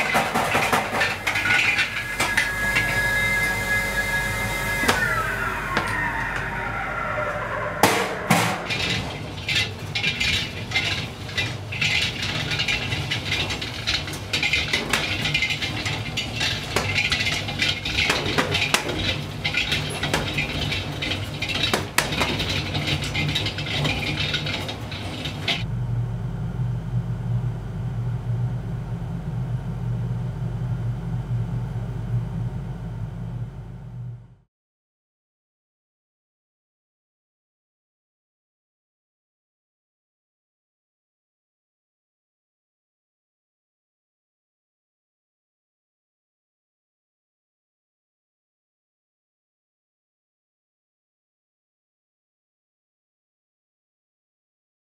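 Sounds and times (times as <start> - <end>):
low machine hum: 0.0 - 34.4
ball bearings clattering in drum: 8.3 - 25.7.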